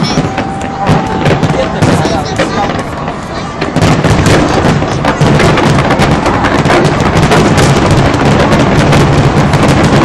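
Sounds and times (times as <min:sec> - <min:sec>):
fireworks bursts and crackles: 0:00.0 - 0:10.0.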